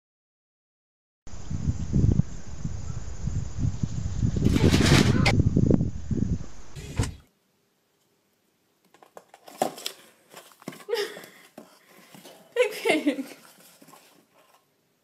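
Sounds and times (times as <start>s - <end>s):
cardboard box scraping on tile: 4.4s - 5.3s, 9.1s - 14.7s
person speaking: 12.2s - 13.5s.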